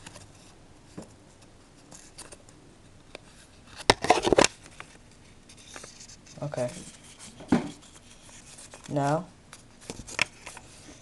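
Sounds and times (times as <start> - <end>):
paper rustling: 3.3 - 11.0
paper crinkling and crackling: 3.8 - 11.0.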